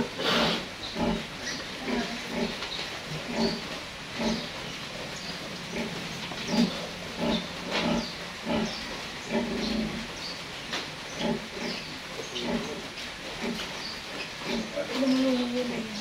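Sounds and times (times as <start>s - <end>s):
sow grunting: 0.0s - 2.6s, 3.2s - 4.6s, 5.6s - 10.1s, 14.4s - 16.0s.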